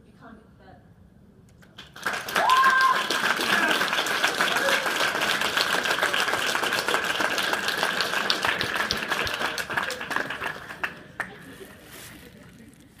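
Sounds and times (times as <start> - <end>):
audience applause: 1.8 - 11.6.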